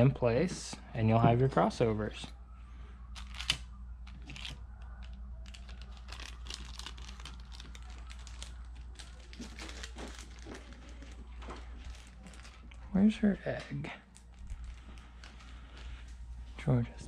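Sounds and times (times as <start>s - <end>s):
plastic bags rustling and crinkling: 3.2s - 16.8s.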